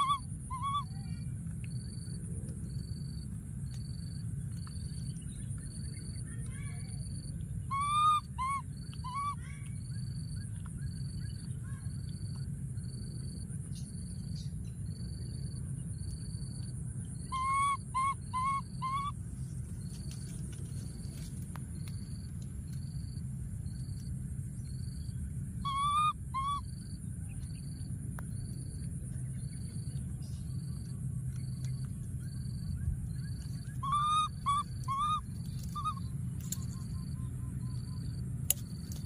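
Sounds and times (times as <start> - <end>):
baby monkey crying: 0.0 - 1.0, 7.7 - 9.5, 17.3 - 19.2, 25.6 - 26.7, 33.7 - 36.1.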